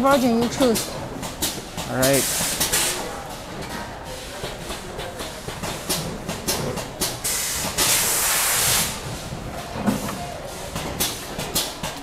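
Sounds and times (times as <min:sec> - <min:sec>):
clicks and clacks of parts: 0:00.6 - 0:08.1, 0:09.6 - 0:12.0
loud hiss: 0:07.3 - 0:09.0.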